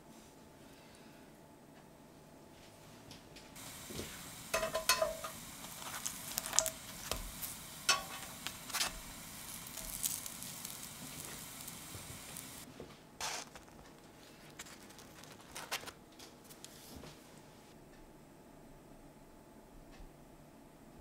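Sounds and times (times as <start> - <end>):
bread sizzling on grill pan: 3.6 - 13.4.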